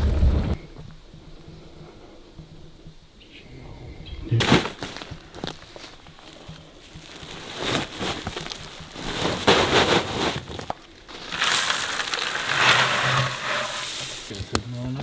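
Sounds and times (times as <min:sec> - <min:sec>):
dry bait pouring onto leaves: 0:06.2 - 0:14.3.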